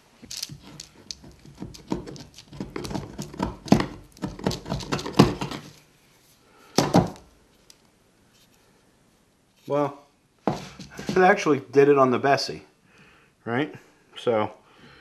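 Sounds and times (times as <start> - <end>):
chisel scraping glue off wood: 0.5 - 5.7.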